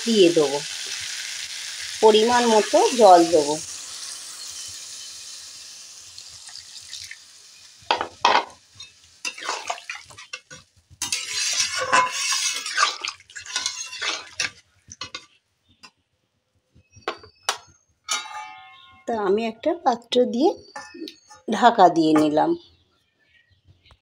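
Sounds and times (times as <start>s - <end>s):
water sizzling in hot pan: 0.0s - 15.2s
metal spatula scraping pan: 8.4s - 15.2s, 18.1s - 19.0s.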